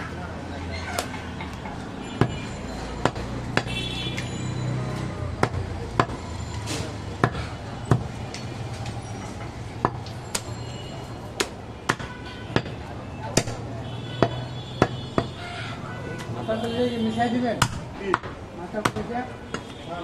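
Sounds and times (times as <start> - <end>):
knife chopping meat on wood block: 5.4 - 6.2, 7.2 - 8.2, 9.8 - 10.5, 11.4 - 15.4, 17.6 - 19.7.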